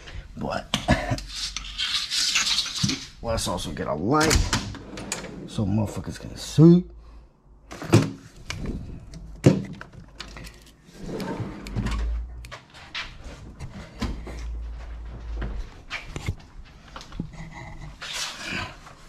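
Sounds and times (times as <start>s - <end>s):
metal drawers sliding: 4.2s - 5.6s, 11.0s - 12.3s.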